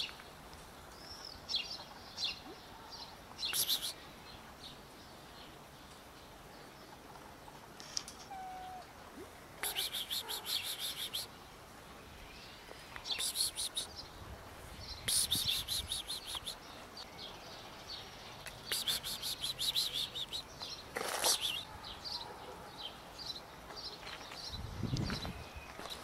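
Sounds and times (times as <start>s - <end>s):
bird chattering: 3.4s - 4.0s, 9.6s - 11.3s, 15.0s - 16.7s, 18.5s - 20.5s.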